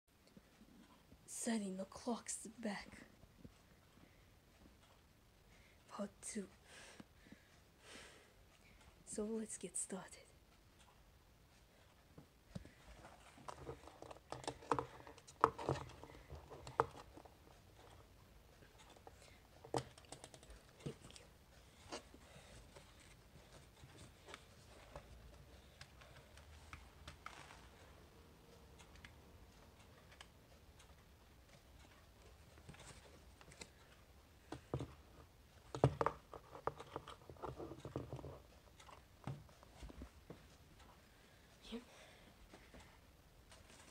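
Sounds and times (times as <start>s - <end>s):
plastic clock clicks and scrapes: 13.0s - 18.0s, 28.8s - 40.0s.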